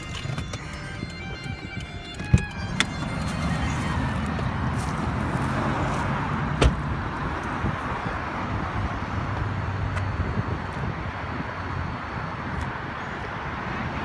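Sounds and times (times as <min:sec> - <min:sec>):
car door shutting: 0:00.0 - 0:04.4, 0:06.5 - 0:07.0.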